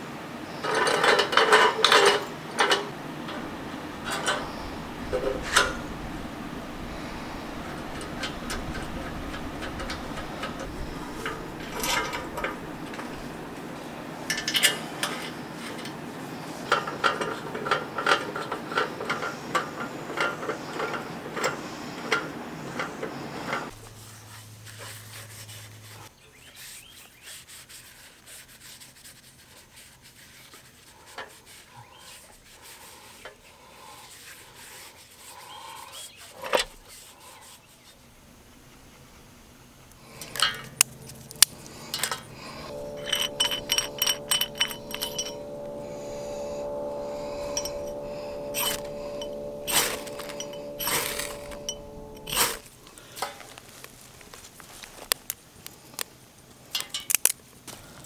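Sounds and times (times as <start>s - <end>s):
background hiss: 0.0s - 58.0s
metal-on-metal scraping: 0.6s - 23.7s, 40.1s - 52.7s.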